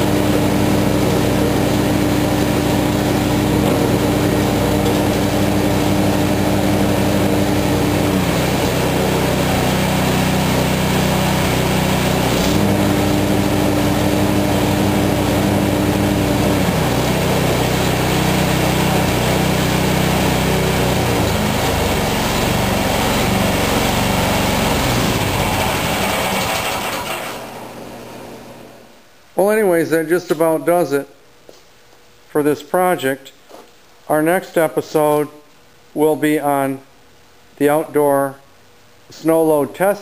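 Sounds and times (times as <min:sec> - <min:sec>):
snowblower engine running: 0:00.0 - 0:28.1.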